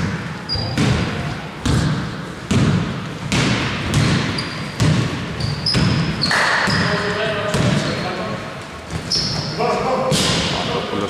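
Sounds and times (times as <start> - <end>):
sneakers squeaking: 0.0 - 10.9
basketball bouncing on hardwood: 0.7 - 6.1, 7.4 - 7.9.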